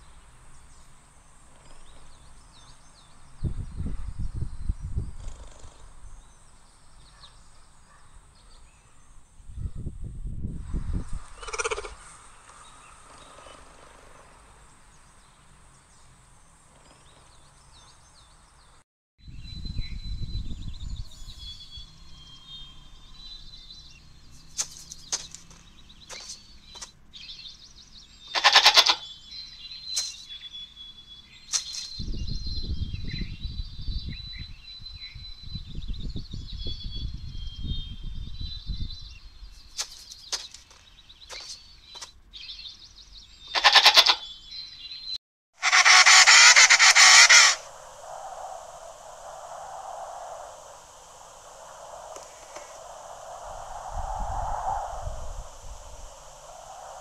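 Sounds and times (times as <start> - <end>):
goat bleat: 28.4 - 29.0, 43.6 - 44.2
low rumbling noise: 47.5 - 57.0.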